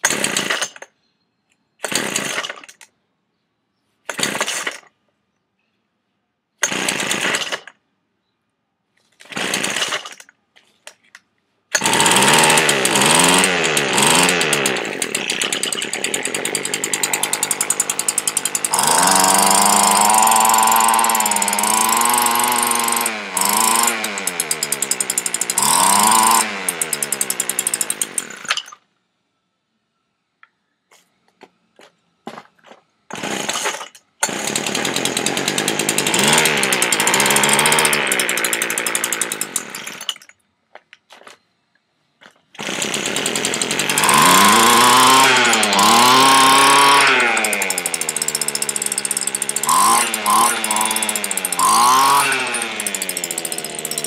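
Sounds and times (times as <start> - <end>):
small engine revving: 11.8 - 28.6, 33.1 - 40.1, 42.6 - 54.0.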